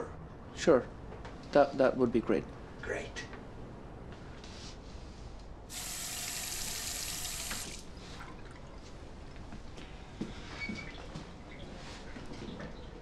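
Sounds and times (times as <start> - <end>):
water tap filling a glass: 5.7 - 7.8.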